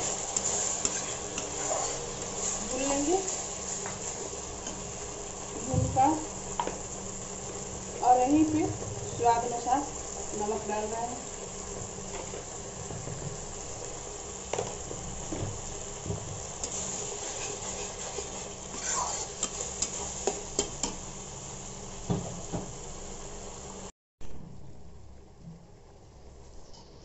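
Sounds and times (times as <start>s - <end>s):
metal spatula scraping pan: 0.0s - 4.8s, 16.6s - 21.0s
paste sizzling in oil: 0.0s - 23.9s.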